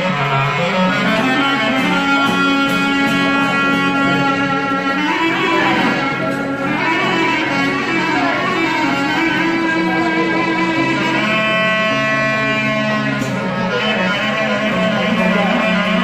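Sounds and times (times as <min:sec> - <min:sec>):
clarinet folk melody: 0:00.0 - 0:16.0.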